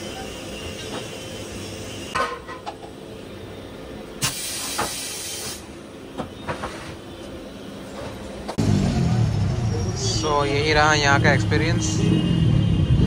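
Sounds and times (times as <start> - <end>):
compressed air hiss: 4.2 - 5.7.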